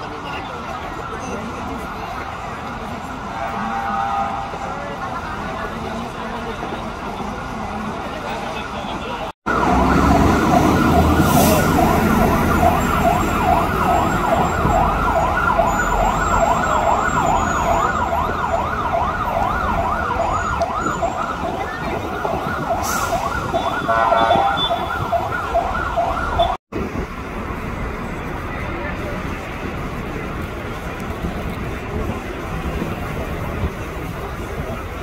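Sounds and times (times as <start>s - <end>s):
traffic rumble and idling engines: 0.0s - 35.0s
siren yelping: 9.5s - 26.6s.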